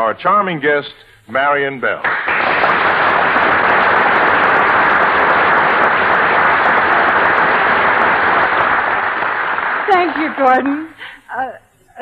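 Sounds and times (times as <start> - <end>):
studio audience applauding: 2.0 - 11.0.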